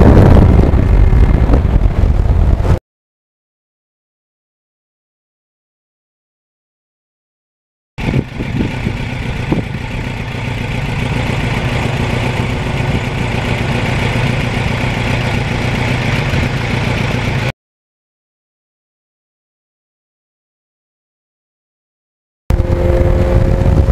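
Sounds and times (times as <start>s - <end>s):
motorcycle engine idling: 8.0s - 17.5s.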